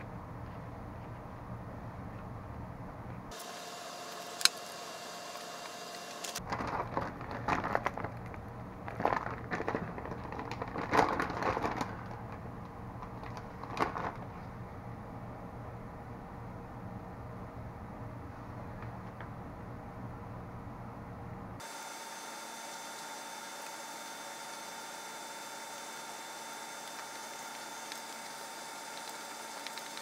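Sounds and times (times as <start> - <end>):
plastic package crinkling: 6.0 - 14.4, 26.5 - 30.0.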